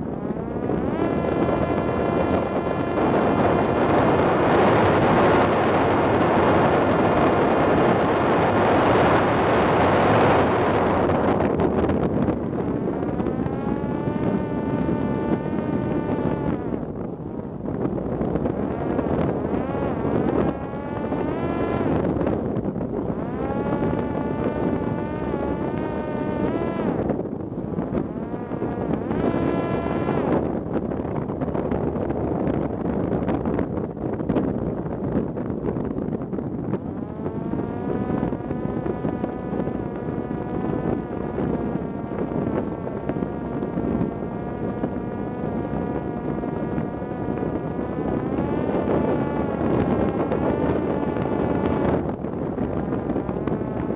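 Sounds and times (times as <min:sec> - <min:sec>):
drone propeller whining: 0:00.0 - 0:33.6, 0:35.4 - 0:53.9
wind noise on microphone: 0:00.0 - 0:53.9.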